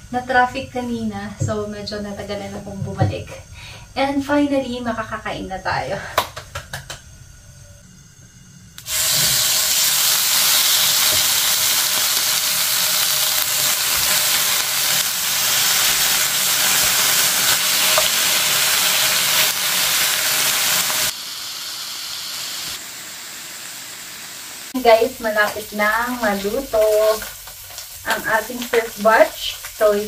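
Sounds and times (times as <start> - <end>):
pork sizzling in a frying pan: 8.8 - 30.0.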